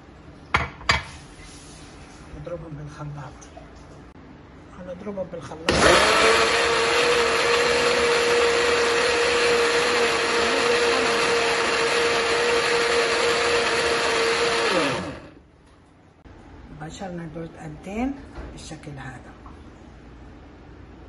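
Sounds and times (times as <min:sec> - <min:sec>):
blender motor whine: 0:05.7 - 0:15.4
blender winding down: 0:05.7 - 0:15.4.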